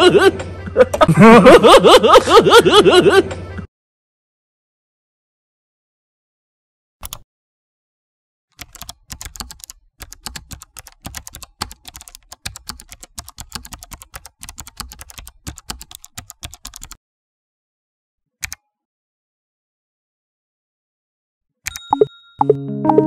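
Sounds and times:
keyboard typing: 7.0 - 7.2, 8.5 - 17.0.

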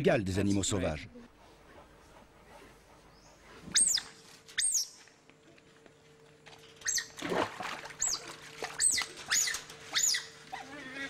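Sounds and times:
high squeaky animal calls: 3.7 - 4.9, 6.8 - 7.2, 8.0 - 11.0.

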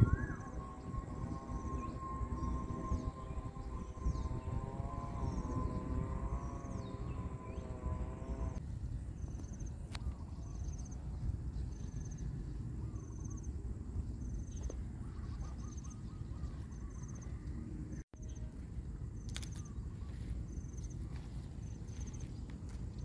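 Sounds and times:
high pulsed chirp: 0.0 - 8.6
warbling bird call: 0.0 - 8.6
low steady rumble: 0.0 - 23.0.

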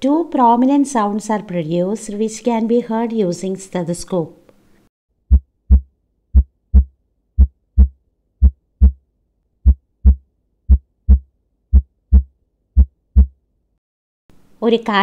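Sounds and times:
human heartbeat: 5.3 - 9.0, 9.6 - 13.4.

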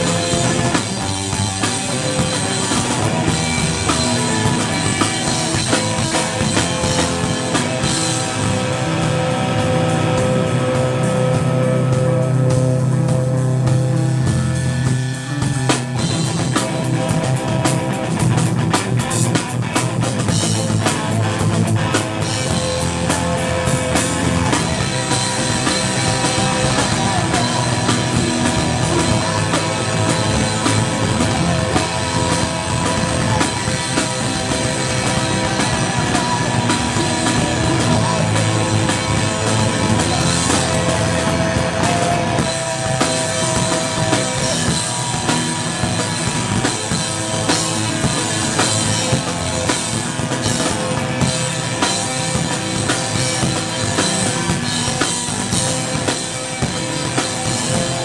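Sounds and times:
punk rock band playing: 0.0 - 58.0.

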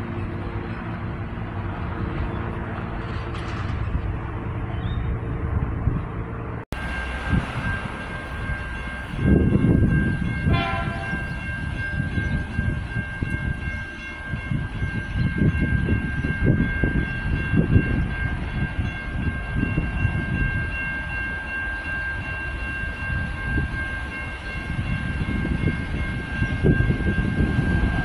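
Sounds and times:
diesel railcar engine running: 0.0 - 28.0
train horn blast: 10.5 - 11.2.

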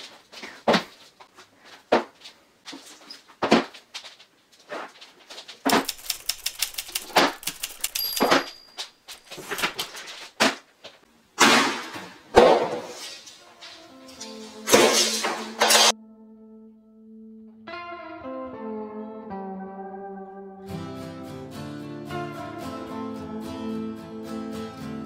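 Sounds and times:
plastic sheet rustling: 0.0 - 10.7
music: 13.0 - 25.0.

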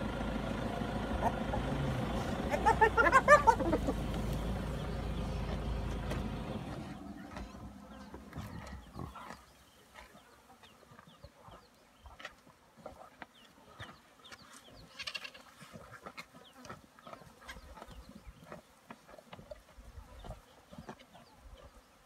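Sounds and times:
low rumble: 0.0 - 9.2.

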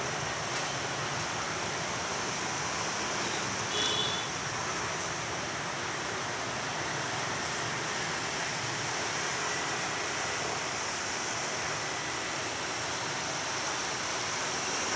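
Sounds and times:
steady rushing outdoor noise: 0.0 - 14.9.

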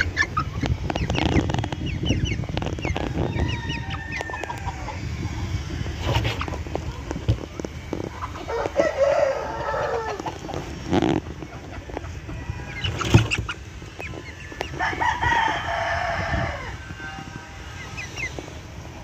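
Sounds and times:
rooster crowing: 3.0 - 5.0, 8.5 - 10.3, 14.8 - 17.8.

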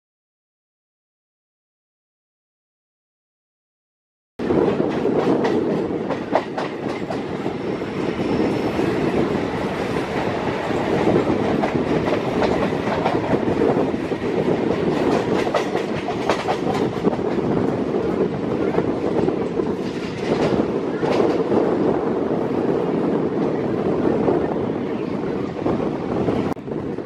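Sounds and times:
clattering clicks of train: 4.4 - 23.6
train wheels rumbling on track: 4.4 - 27.0.

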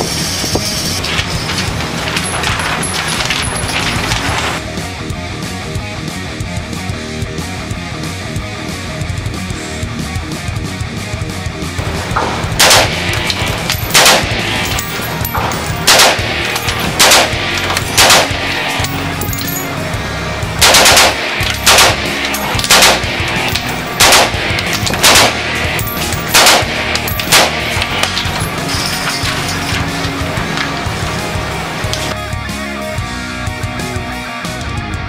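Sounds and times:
background music: 0.1 - 35.0
rifle firing single shots: 12.0 - 19.7, 20.6 - 30.7.

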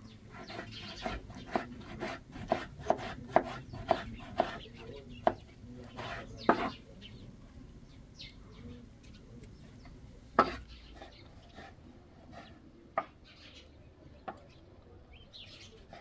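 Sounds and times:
birds chirping: 0.0 - 16.0
knife striking a cutting board: 10.4 - 10.6.

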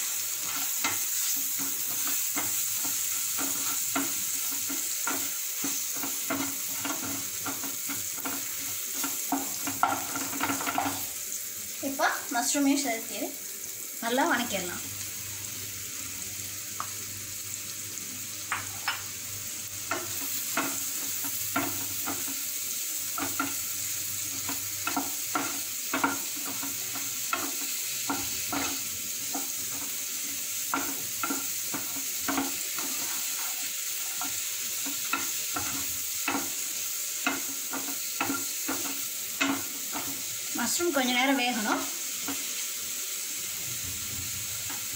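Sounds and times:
mushrooms sizzling in a frying pan: 0.0 - 44.9
spatula scraping and tapping pan: 0.3 - 11.1, 18.5 - 19.1, 19.8 - 22.5, 23.1 - 40.3, 41.6 - 42.6.

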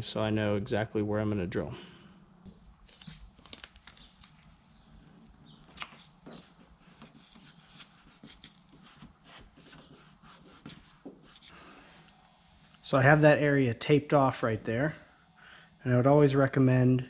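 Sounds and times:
tape crackling and rustling: 2.5 - 9.6.

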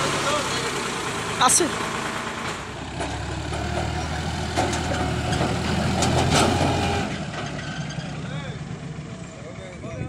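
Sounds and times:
tractor diesel engine running: 0.0 - 10.0.

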